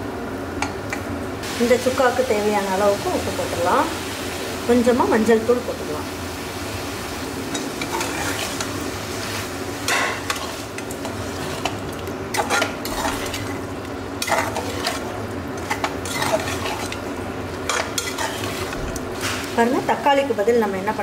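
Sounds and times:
meat sizzling in oil: 1.4s - 21.0s
metal spatula scraping pan: 7.8s - 8.8s, 9.9s - 19.5s.

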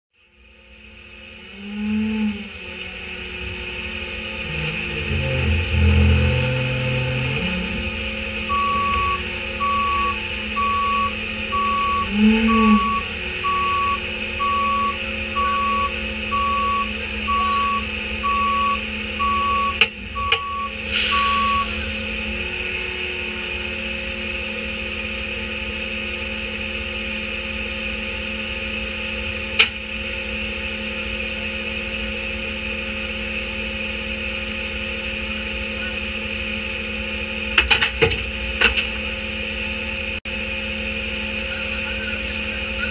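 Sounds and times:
garbage truck diesel engine: 0.2s - 42.9s
reverse alarm beeping: 8.4s - 22.1s
short hiss: 20.9s - 22.1s.

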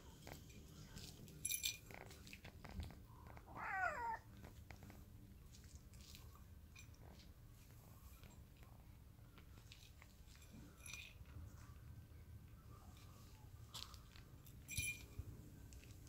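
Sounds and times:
cat meowing: 3.4s - 4.3s.

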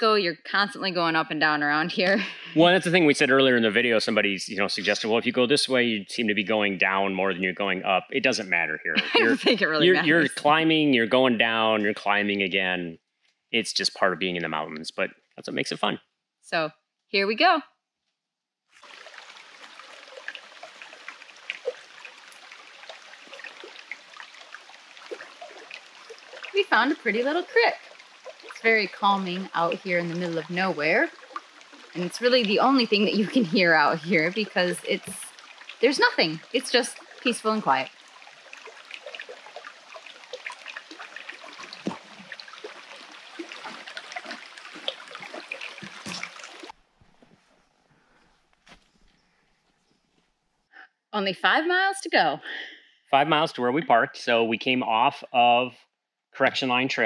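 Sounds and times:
creek trickling over stones: 9.0s - 10.3s, 18.8s - 47.4s.

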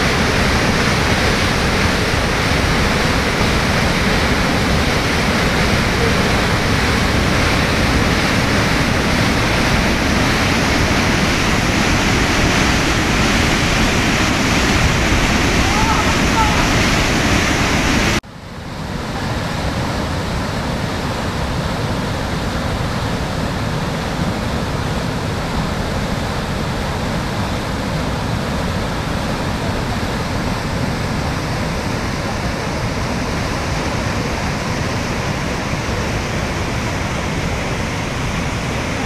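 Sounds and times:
waterfall rushing over rock: 0.0s - 39.0s.

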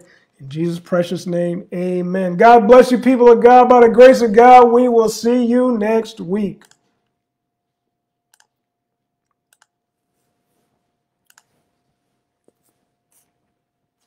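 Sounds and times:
faint computer clicks: 9.2s - 9.8s, 11.2s - 11.6s.

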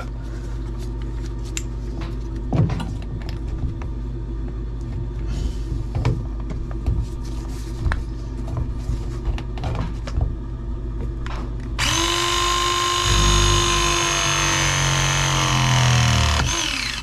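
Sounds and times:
press tool motor whine: 11.8s - 17.0s.

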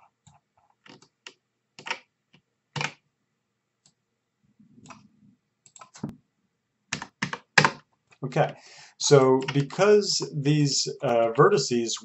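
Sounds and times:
computer mouse clicks: 0.9s - 2.0s, 5.6s - 6.1s, 9.4s - 9.8s
keyboard clicks: 1.8s - 2.0s, 2.8s - 3.0s, 5.7s - 6.1s, 6.9s - 7.8s, 9.0s - 10.0s.

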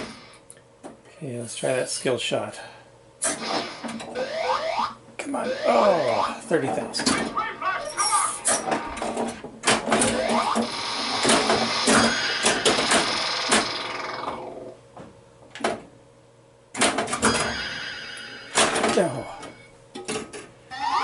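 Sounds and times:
pinball machine clacks: 8.4s - 14.4s, 16.8s - 17.8s, 18.4s - 20.4s.

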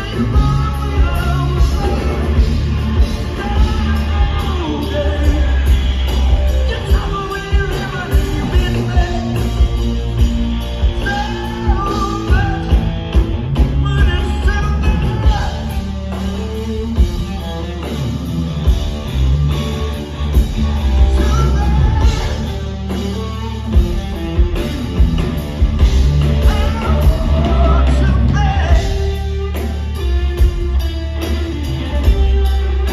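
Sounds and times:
person singing: 0.0s - 10.0s, 13.6s - 17.1s, 21.0s - 23.6s, 26.3s - 30.2s
drums: 0.0s - 32.9s
electric guitar: 0.0s - 32.9s
heavy bass: 0.0s - 32.9s.

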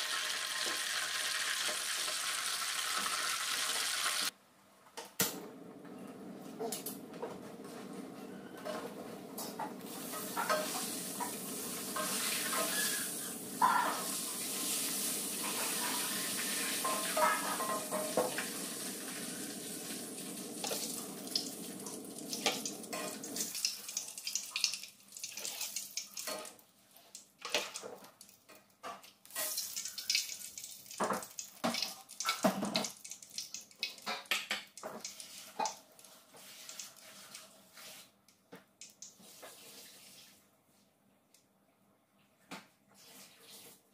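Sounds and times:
hot oil hissing in a wok: 0.0s - 4.3s, 9.9s - 22.6s
light sizzling: 0.0s - 4.3s, 9.4s - 38.2s
metal ladle scraping a wok: 12.0s - 14.0s.

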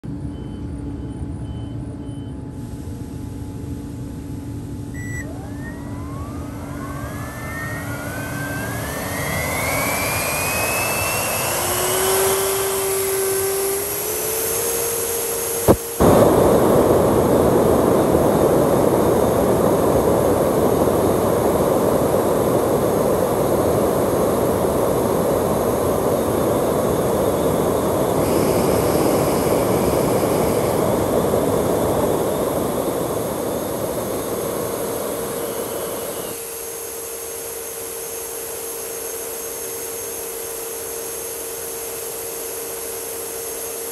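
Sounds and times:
model jet fan whine: 3.6s - 43.9s
jet roar: 5.2s - 42.7s
sharp pop: 15.7s - 17.3s.

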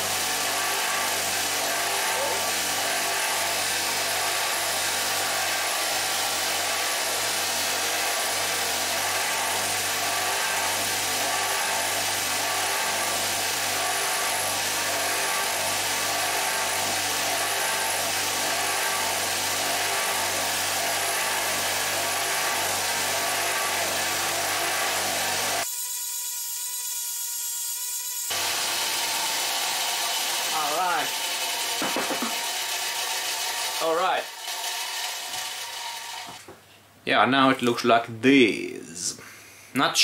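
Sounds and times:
bench grinder motor whirring: 0.0s - 36.5s
metal part polished on wheel: 29.1s - 32.4s.

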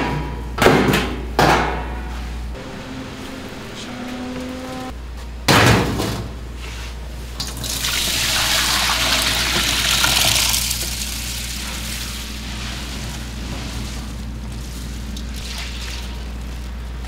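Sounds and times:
liquid pouring: 7.5s - 12.4s.

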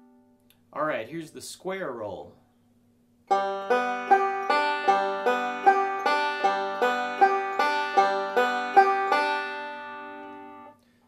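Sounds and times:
banjo picking: 3.3s - 10.7s.

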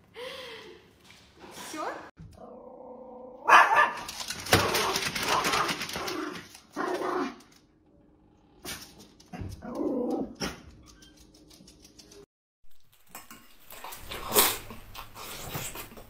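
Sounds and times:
small dog barking: 3.4s - 4.1s.

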